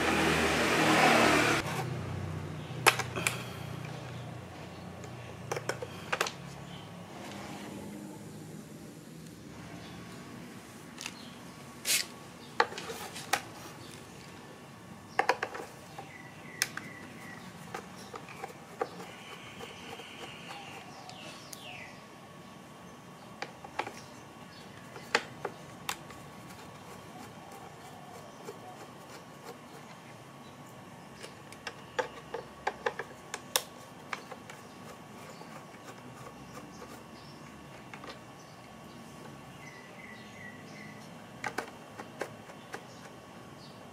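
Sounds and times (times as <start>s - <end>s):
plastic parts clicking and tapping: 5.0s - 6.4s, 15.2s - 15.7s, 31.2s - 34.6s, 41.4s - 43.1s.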